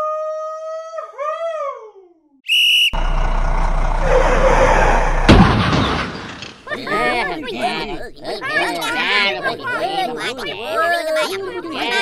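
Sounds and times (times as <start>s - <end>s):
high whistle-like tone: 2.5s - 3.1s.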